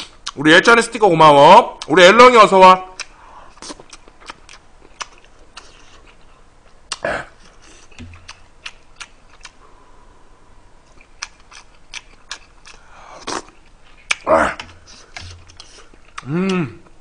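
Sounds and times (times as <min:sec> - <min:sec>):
chewing and lip-smacking: 0:03.0 - 0:09.6, 0:10.9 - 0:16.3.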